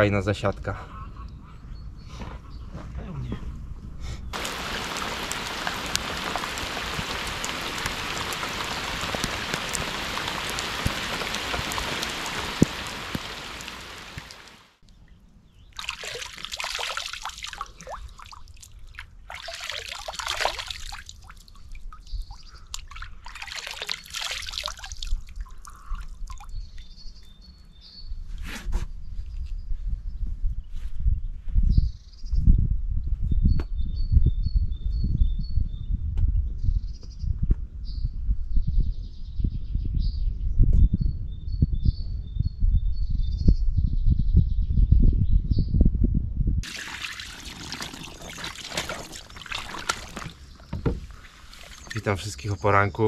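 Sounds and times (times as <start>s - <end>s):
hands splashing in water: 4.4s - 14.6s, 15.8s - 26.6s, 46.6s - 52.3s
heavy rain: 4.4s - 14.8s, 46.6s - 50.4s.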